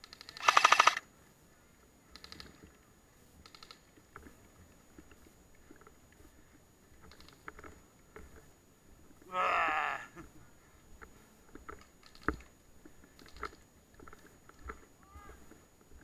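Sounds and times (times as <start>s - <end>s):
airsoft gunfire bursts: 0.3s - 1.0s
soft clicks: 2.1s - 4.4s.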